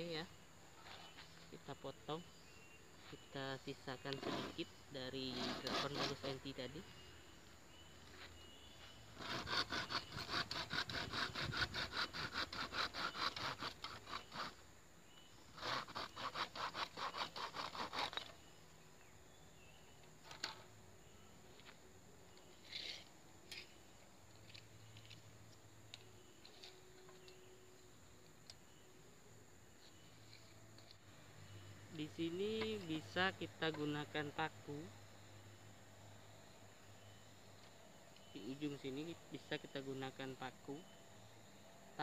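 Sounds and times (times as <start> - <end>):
hand saw cutting wood: 4.1 - 6.4, 9.1 - 14.6, 15.5 - 18.4.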